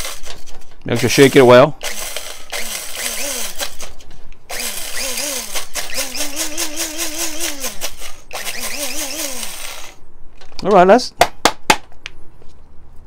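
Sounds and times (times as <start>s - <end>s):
beans rattling against blades: 0.0s - 10.0s
coffee grinder motor whine: 4.5s - 10.0s.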